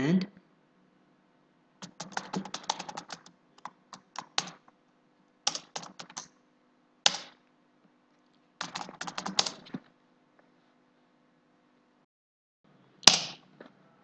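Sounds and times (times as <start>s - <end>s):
computer keyboard typing: 1.8s - 4.7s, 5.5s - 6.4s, 8.6s - 9.8s.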